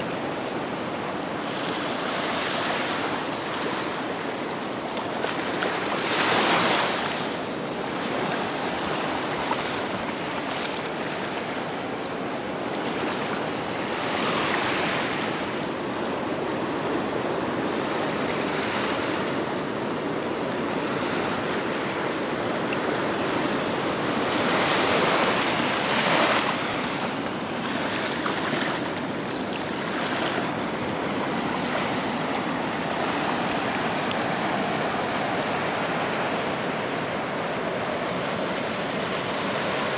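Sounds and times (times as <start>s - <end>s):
ocean waves washing on beach: 0.0s - 39.9s.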